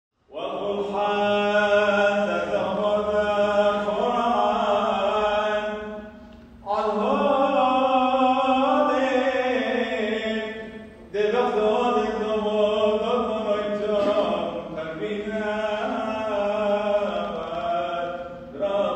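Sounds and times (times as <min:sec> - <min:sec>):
person singing chant: 0:00.3 - 0:18.9.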